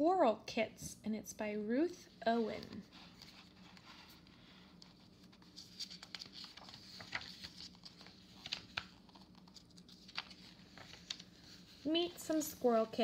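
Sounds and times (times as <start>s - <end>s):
book pages turning: 2.1s - 13.0s.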